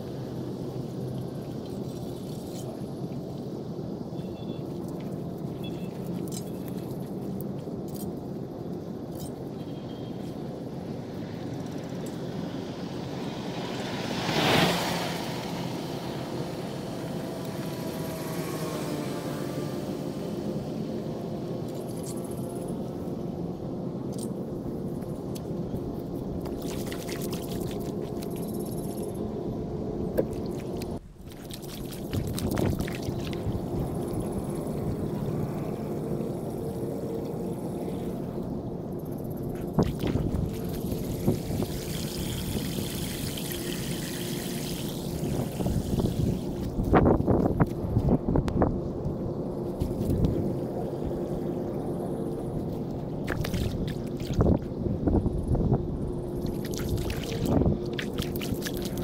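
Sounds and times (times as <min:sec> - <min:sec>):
outdoor background noise: 0:00.0 - 0:59.0
vehicle passing by: 0:12.3 - 0:21.6
floodwater rushing in gutter: 0:26.3 - 0:29.4, 0:30.2 - 0:36.2, 0:39.5 - 0:47.4, 0:52.8 - 0:54.7, 0:56.4 - 0:59.0
water splashes: 0:26.4 - 0:29.2, 0:30.2 - 0:34.8, 0:39.5 - 0:47.1, 0:52.8 - 0:54.7, 0:56.4 - 0:59.0.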